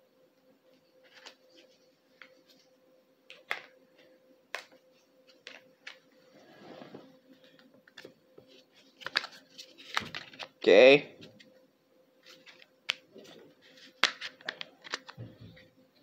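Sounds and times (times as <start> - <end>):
faint steady hum: 0.0 - 16.0
soft rustle: 6.2 - 7.6.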